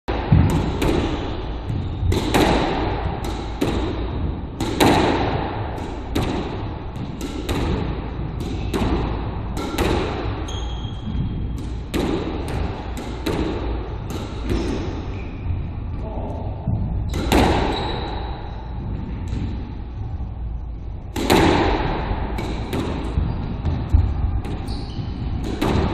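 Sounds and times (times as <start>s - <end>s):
squash ball hits echoing: 0.1s - 25.9s.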